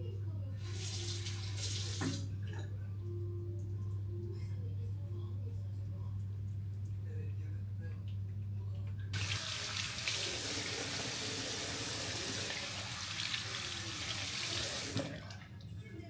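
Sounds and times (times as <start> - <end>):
water tap turning: 0.6 - 2.3, 9.2 - 15.3
water running into sink: 0.6 - 2.4, 9.2 - 15.5.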